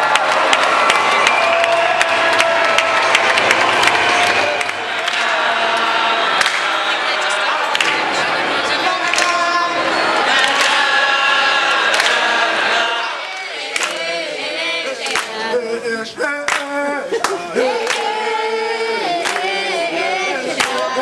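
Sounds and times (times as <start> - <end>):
hand claps: 0.0 - 5.4, 6.4 - 6.7, 7.7 - 8.0, 9.1 - 9.4, 11.9 - 12.3, 13.7 - 14.0, 15.0 - 15.3, 16.5 - 18.1, 19.2 - 19.5, 20.6 - 20.9
group singing unaccompanied: 4.0 - 21.0.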